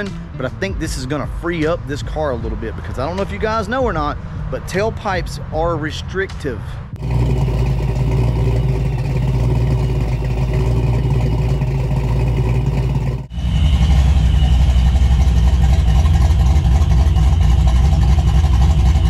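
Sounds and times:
car engine idling: 0.0 - 19.0
engine idling with choppy rumble: 0.0 - 19.0.

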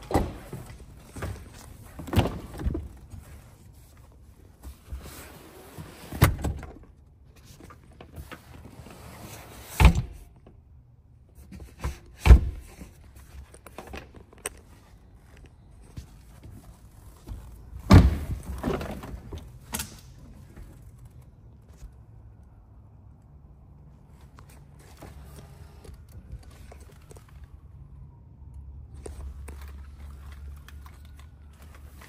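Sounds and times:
rustling inside car: 11.3 - 19.5.

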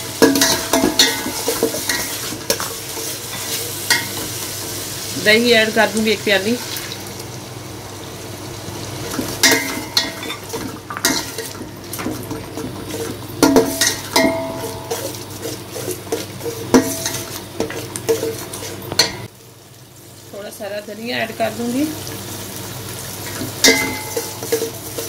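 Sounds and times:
masala sizzling: 0.0 - 25.0
metal spatula scraping steel pot: 9.4 - 19.3, 23.3 - 25.0.

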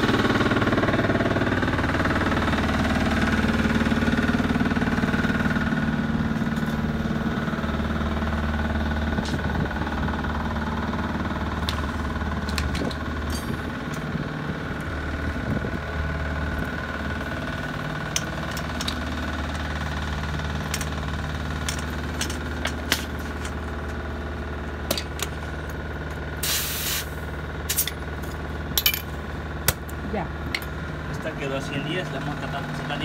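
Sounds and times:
engine idling: 0.0 - 33.0
air hiss: 26.4 - 27.2
tools clinking on lug nuts: 27.7 - 29.9.

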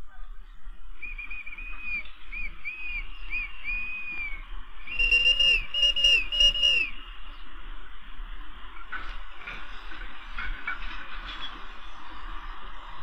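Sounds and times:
shrill railway whistles: 0.7 - 7.4.

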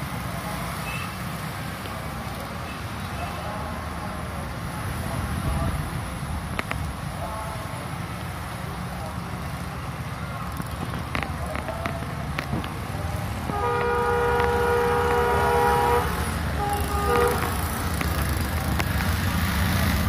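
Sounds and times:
low rumble of traffic and engine: 0.0 - 20.0
locomotive horn blasts: 13.5 - 17.8.

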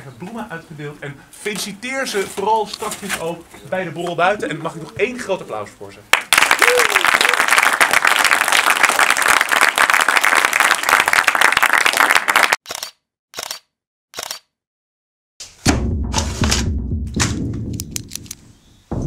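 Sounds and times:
audience applauding: 6.1 - 12.6
short bursts of sound: 12.7 - 14.5.

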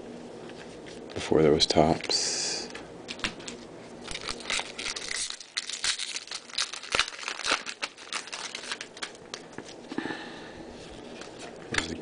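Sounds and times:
foil wrapper tearing and crinkling: 3.4 - 9.8.

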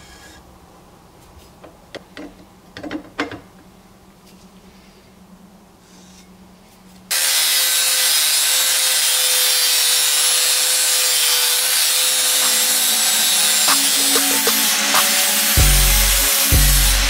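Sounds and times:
angle grinder grinding steel: 7.1 - 17.0.

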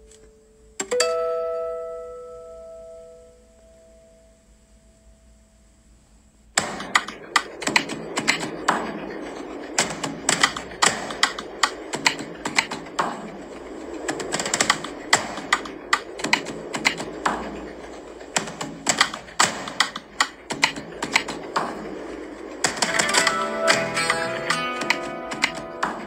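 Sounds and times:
music with sustained notes: 0.0 - 5.6, 22.7 - 26.0
rapid sharp clicks and taps: 6.6 - 26.0.

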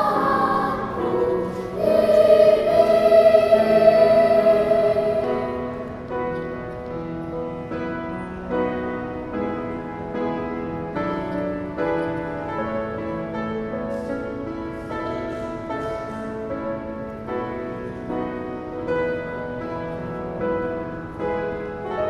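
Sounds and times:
children's choir singing: 0.0 - 6.5
piano accompaniment: 0.0 - 22.0.

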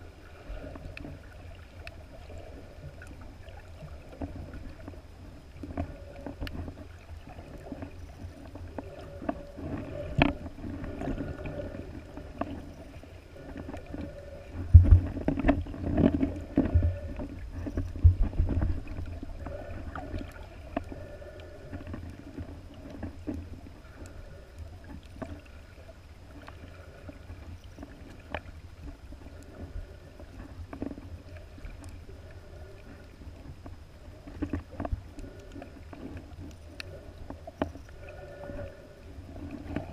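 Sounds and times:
underwater rumble of moving water: 0.0 - 39.9
underwater knocks: 14.7 - 19.1.

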